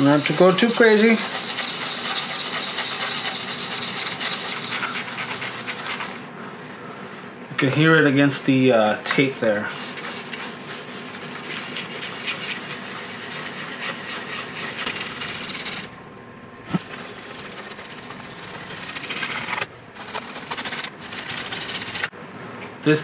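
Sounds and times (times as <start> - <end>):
sanding pad scratching: 0.0 - 6.2, 9.2 - 15.9, 16.7 - 22.1.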